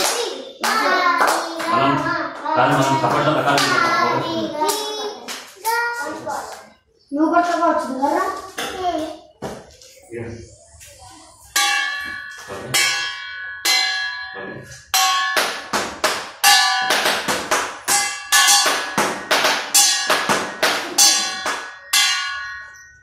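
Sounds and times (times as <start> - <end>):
steel plate clanging: 11.5 - 23.0.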